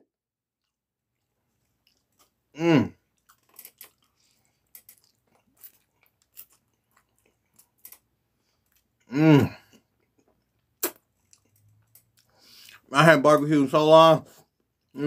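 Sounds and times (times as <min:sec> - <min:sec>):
chewing and slurping pasta: 0:00.6 - 0:09.1, 0:09.7 - 0:12.9
man humming mm: 0:02.6 - 0:03.0, 0:09.1 - 0:09.6.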